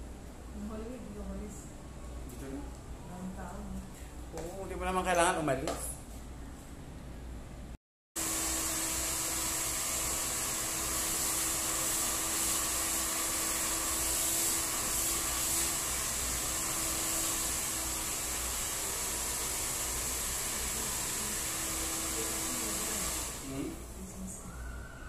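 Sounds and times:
hair dryer running: 0:08.2 - 0:23.9.

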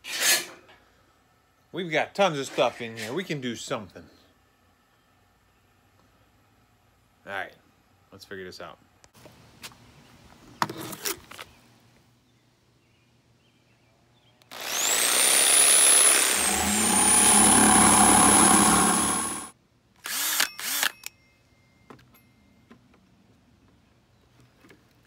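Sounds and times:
jigsaw cutting plastic: 0:14.5 - 0:19.5
short bursts of sound: 0:14.5 - 0:19.5.

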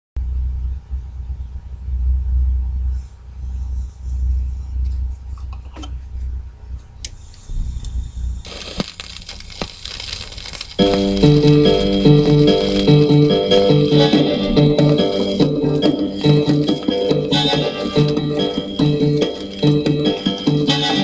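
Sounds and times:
handling rumble: 0:00.2 - 0:21.0
vinyl surface hiss: 0:01.1 - 0:21.0
vinyl crackles and pops: 0:08.4 - 0:21.0
stylus touching down on vinyl: 0:08.5 - 0:21.0.

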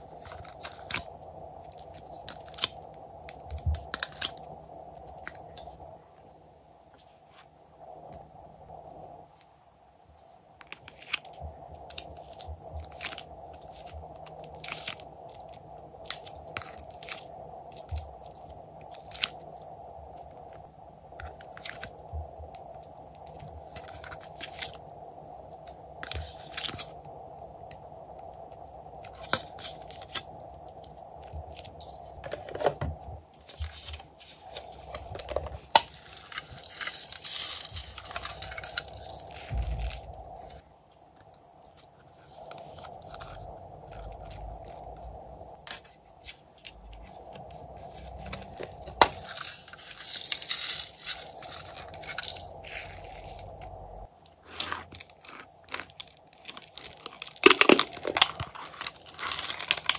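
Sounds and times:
plastic scraping: 0:31.8 - 0:40.1.

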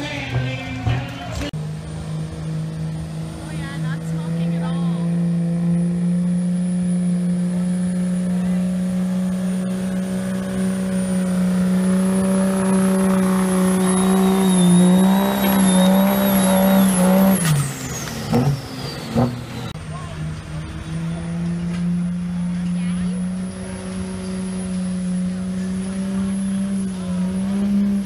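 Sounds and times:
diesel engine high-revving drone: 0:00.0 - 0:28.0
turbo whistle: 0:13.4 - 0:17.5.

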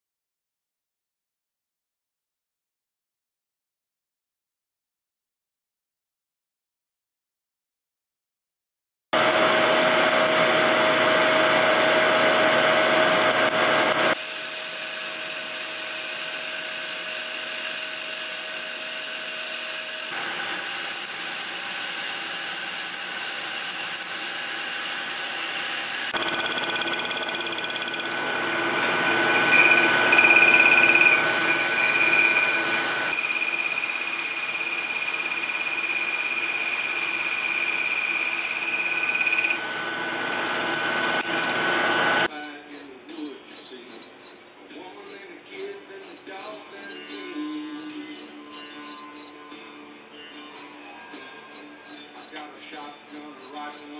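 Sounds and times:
milling machine whine: 0:09.2 - 0:42.3
shrill ringing tone: 0:29.0 - 0:39.6.

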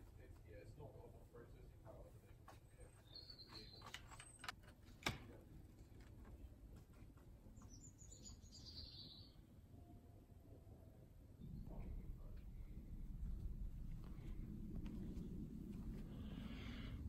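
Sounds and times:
faint bird chirping: 0:01.9 - 0:04.5, 0:07.4 - 0:10.0.

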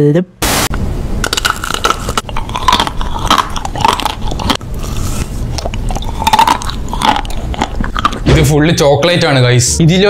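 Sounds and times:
chewing: 0:01.3 - 0:08.3.

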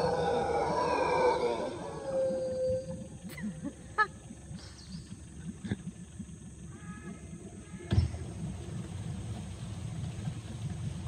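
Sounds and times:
howler monkeys calling: 0:00.0 - 0:05.3
low continuous rumble: 0:00.0 - 0:11.0.

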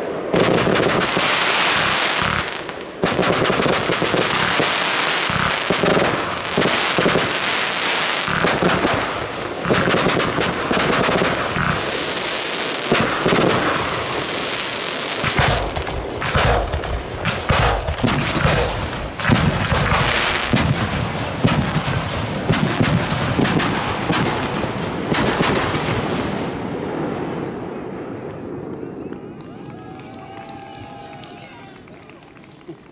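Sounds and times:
fireworks bangs: 0:00.0 - 0:31.0
fireworks crackle: 0:00.0 - 0:32.9.

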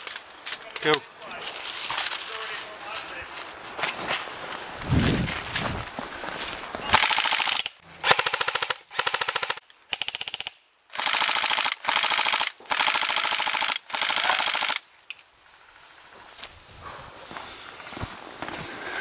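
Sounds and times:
airsoft rifle firing bursts: 0:06.9 - 0:14.8.

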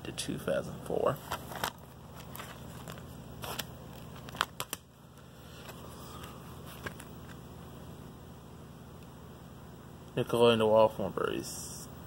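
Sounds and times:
faint steady hum: 0:00.0 - 0:12.0
plastic disc case clicks: 0:01.3 - 0:04.9.

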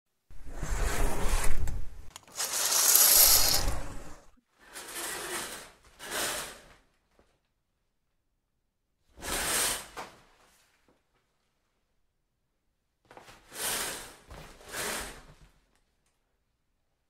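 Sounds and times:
curtain pulled along rail: 0:00.4 - 0:06.7.

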